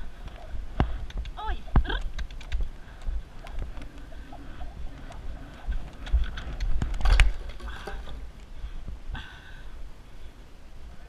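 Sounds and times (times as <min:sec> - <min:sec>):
low thumps of movement: 0:00.0 - 0:09.1
wind on microphone: 0:00.0 - 0:11.0
scattered clicks: 0:00.2 - 0:07.4.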